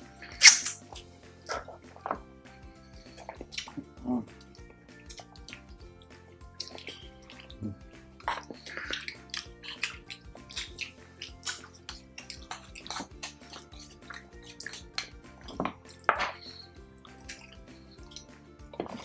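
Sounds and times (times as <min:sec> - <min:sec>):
soft background music: 0:00.0 - 0:19.0
wet chewing and lip smacking: 0:00.2 - 0:02.2, 0:02.9 - 0:05.8, 0:06.5 - 0:19.0.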